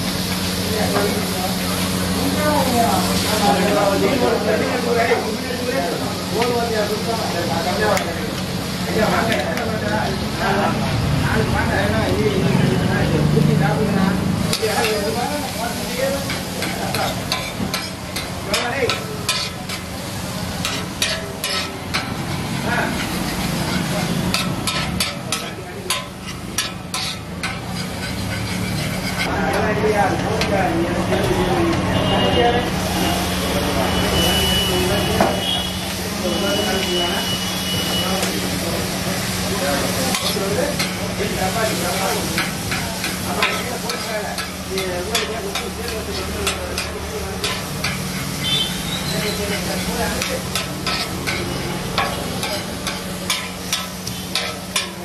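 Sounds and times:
frying sizzle: 0:00.0 - 0:55.0
metal spatula striking griddle: 0:14.5 - 0:15.1, 0:16.1 - 0:19.9, 0:20.6 - 0:29.6, 0:40.1 - 0:41.0, 0:42.3 - 0:48.4, 0:49.5 - 0:55.0.

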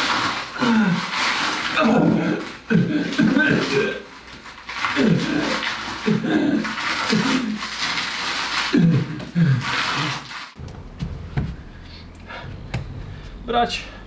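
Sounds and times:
low hum: 0:10.6 - 0:14.0.

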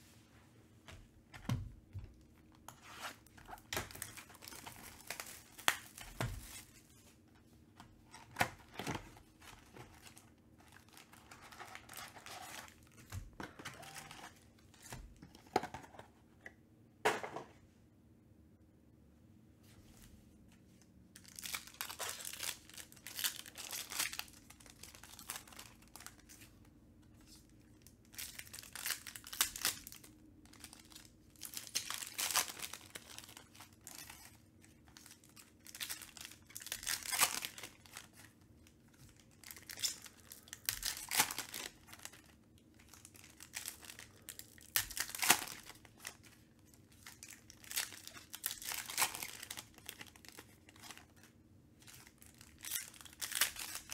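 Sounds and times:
foil wrappers crinkling and tearing: 0:03.1 - 0:06.9, 0:08.1 - 0:14.4, 0:21.2 - 0:26.4, 0:27.3 - 0:53.9.

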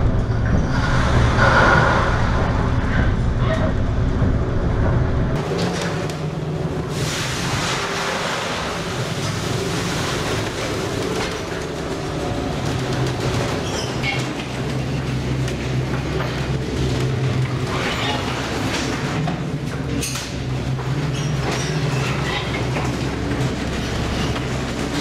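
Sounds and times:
storm wind: 0:00.0 - 0:17.7
sea washing against hull: 0:00.0 - 0:25.0
ship engine humming: 0:00.0 - 0:25.0.

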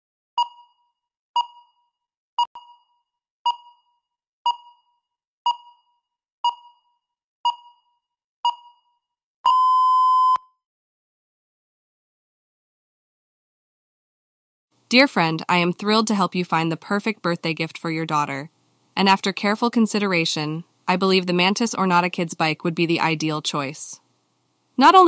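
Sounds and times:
long timer beep: 0:00.4 - 0:00.8, 0:01.4 - 0:01.8, 0:02.4 - 0:10.5
timer short beeps: 0:00.4 - 0:00.8, 0:01.4 - 0:01.8, 0:02.4 - 0:08.9, 0:09.5 - 0:10.5.

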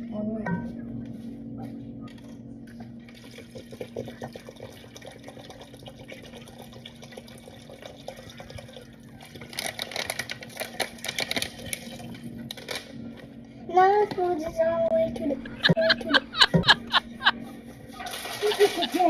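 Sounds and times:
water pouring into a pot: 0:03.1 - 0:10.3, 0:18.0 - 0:19.0
steady low hum: 0:11.5 - 0:18.0.

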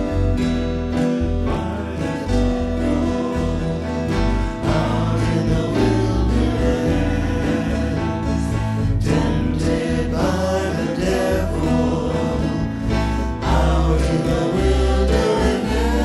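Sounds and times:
electric bass: 0:00.0 - 0:16.0
keyboard: 0:00.0 - 0:16.0
strummed acoustic guitars: 0:00.0 - 0:16.0
women singing into microphones: 0:04.7 - 0:12.7.

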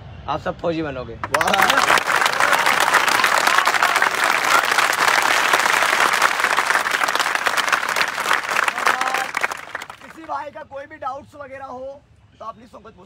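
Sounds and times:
crowd clapping: 0:01.2 - 0:10.5.

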